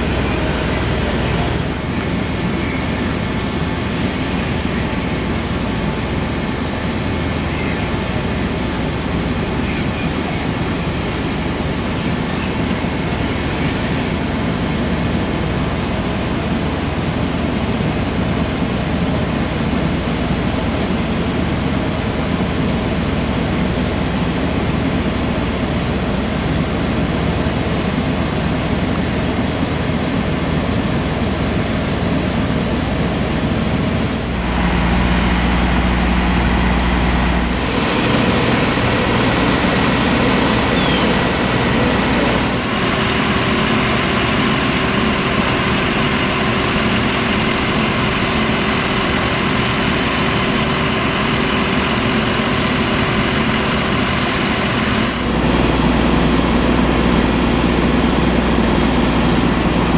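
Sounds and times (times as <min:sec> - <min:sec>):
fire engines running: 0:00.0 - 0:59.9
faint high whine: 0:30.2 - 0:43.0.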